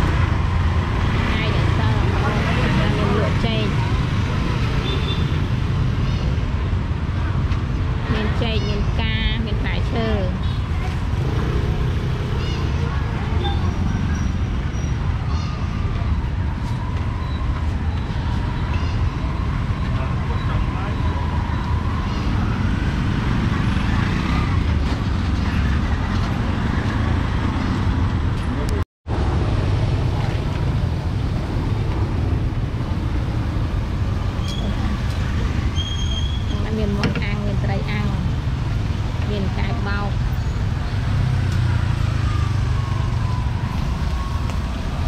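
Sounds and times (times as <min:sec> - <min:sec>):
background hubbub: 0:00.0 - 0:45.0
motor traffic: 0:00.0 - 0:45.0
people's voices: 0:01.2 - 0:04.6, 0:08.0 - 0:11.3, 0:36.5 - 0:38.3, 0:39.2 - 0:40.2.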